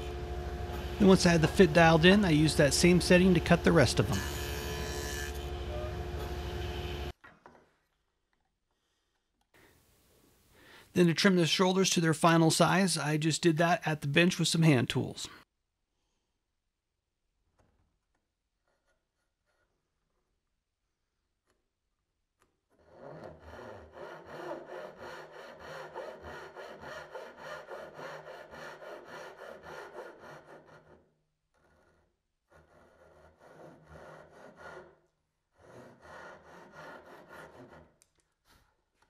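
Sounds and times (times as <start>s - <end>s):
hand saw cutting wood: 0.6s - 6.5s, 22.8s - 38.2s.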